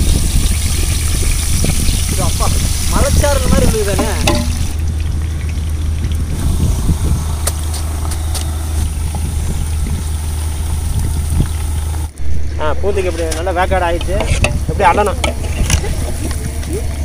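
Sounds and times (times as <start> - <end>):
food sizzling in hot oil: 0.0 - 4.9, 6.3 - 12.1
low mechanical hum: 4.1 - 17.0.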